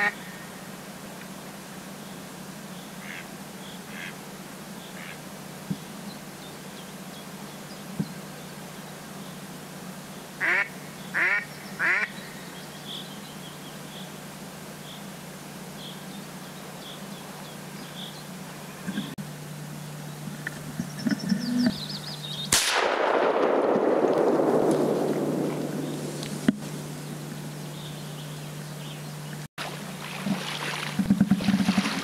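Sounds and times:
duck quacking: 0.0s - 0.3s, 3.0s - 3.3s, 3.9s - 4.2s, 5.0s - 5.2s, 10.4s - 12.1s.

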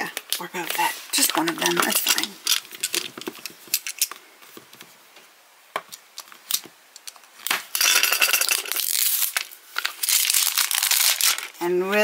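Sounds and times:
packaging crinkling and tearing: 8.5s - 11.6s.

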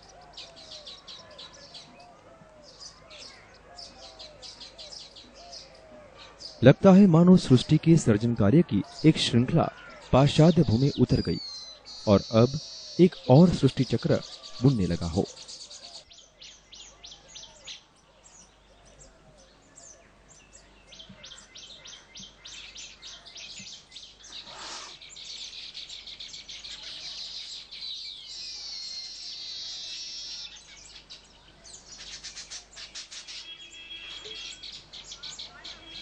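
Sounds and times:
small birds chirping: 0.0s - 36.0s
buzzy bird trill: 8.9s - 16.1s, 32.0s - 36.0s.

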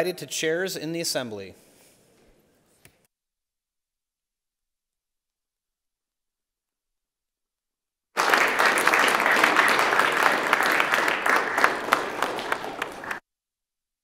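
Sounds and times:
crowd applauding: 8.2s - 13.2s.

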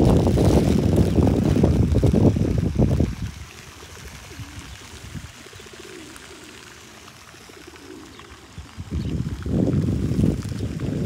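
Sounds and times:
pigeons cooing: 0.0s - 11.0s.

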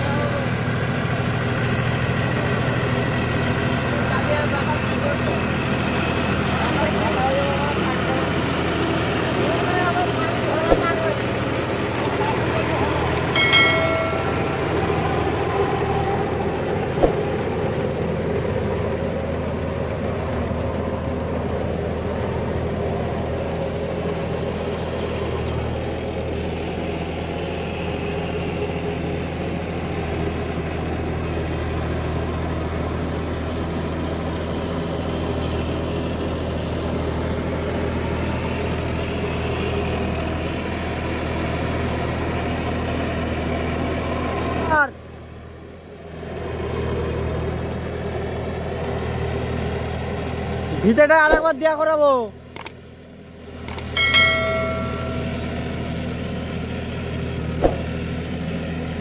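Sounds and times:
tractor diesel engine running: 0.0s - 59.0s
sharp knock: 57.6s - 57.9s.

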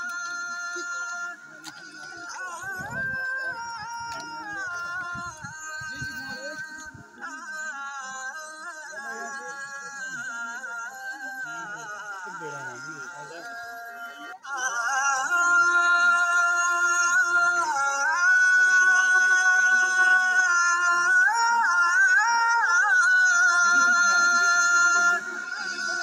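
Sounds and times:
solo voice singing slow melody: 14.4s - 26.0s.

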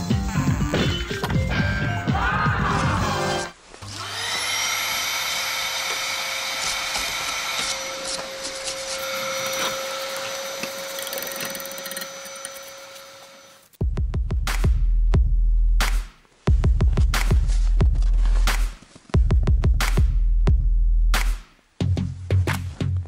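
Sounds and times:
power tool whining: 3.8s - 13.7s.

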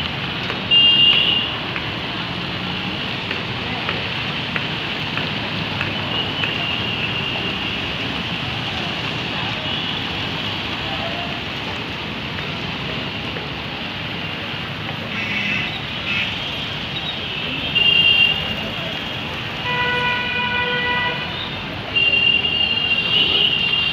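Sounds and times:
vehicle engines running: 1.4s - 19.6s.

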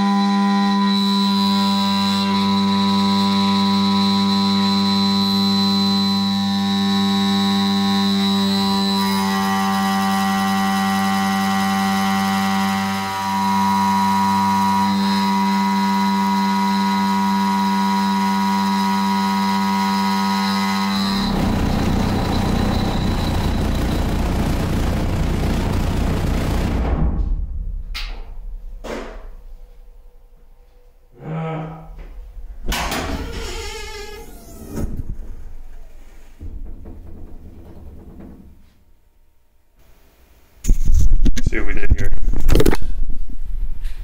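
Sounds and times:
router spindle whine: 0.0s - 26.8s.

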